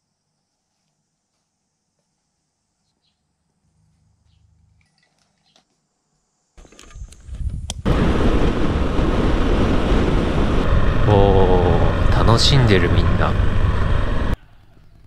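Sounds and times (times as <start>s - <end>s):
wind rushing over microphone: 6.9s - 14.4s.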